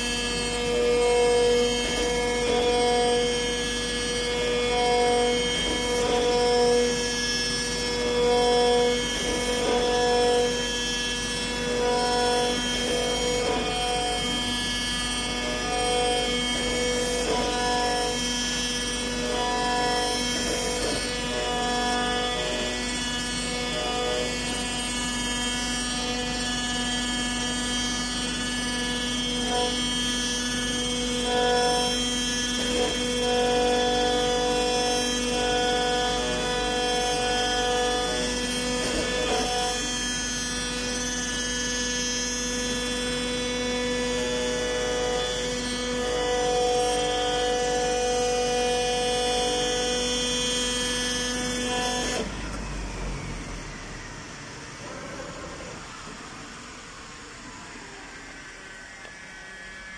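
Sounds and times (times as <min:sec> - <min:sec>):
machine hum with high whine: 0:00.0 - 0:59.9.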